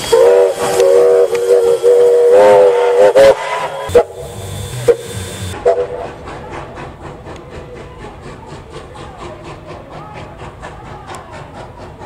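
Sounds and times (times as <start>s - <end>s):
steam whistle toots: 0.0s - 6.1s
steam hissing: 0.0s - 12.0s.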